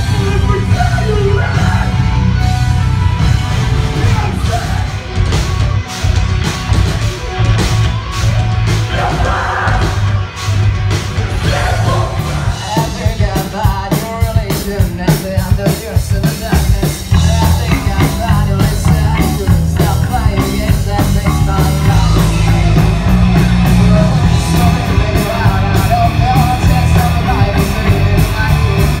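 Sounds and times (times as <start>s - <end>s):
rock band playing: 0.0s - 29.0s
person singing: 8.9s - 10.1s, 11.3s - 29.0s.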